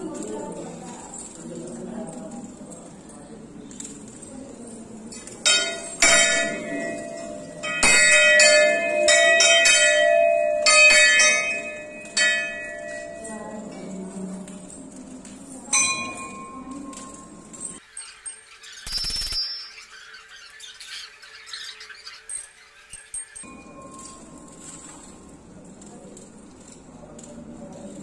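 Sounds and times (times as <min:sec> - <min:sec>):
temple bell ringing: 0:05.4 - 0:17.8, 0:23.4 - 0:25.4
different pitched bell strike: 0:05.5 - 0:13.6.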